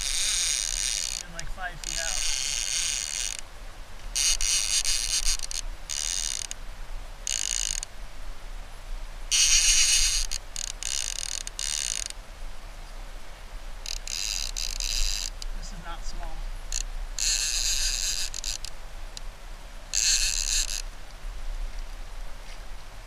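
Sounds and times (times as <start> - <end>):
fishing reel ratcheting: 0.0 - 3.4, 4.2 - 6.6, 7.2 - 7.9, 9.3 - 12.2, 13.8 - 15.5, 16.7 - 18.8, 19.9 - 20.8.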